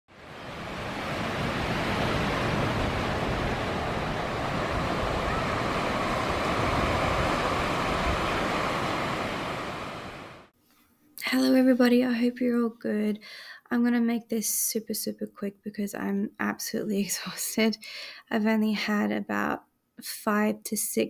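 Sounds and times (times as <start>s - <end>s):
ocean surf: 0.1s - 10.5s.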